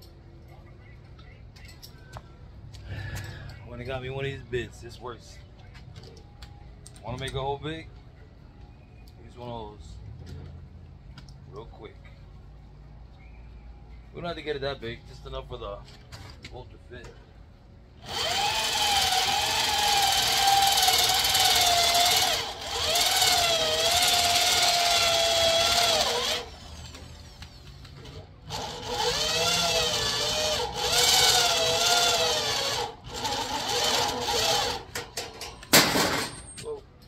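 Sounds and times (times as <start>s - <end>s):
power drill squealing in metal: 18.1s - 35.0s.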